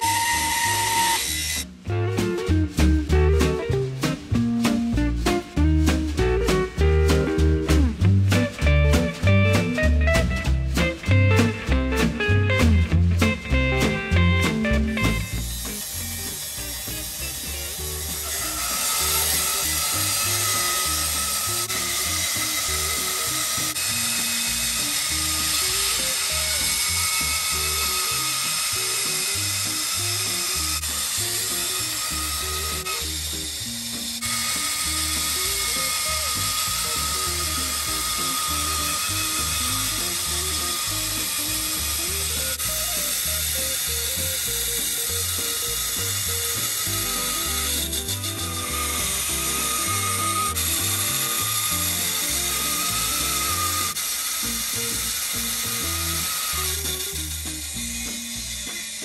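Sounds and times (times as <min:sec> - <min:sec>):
background music with bass: 0:00.0 - 0:59.0
band saw cutting timber: 0:00.0 - 0:59.0.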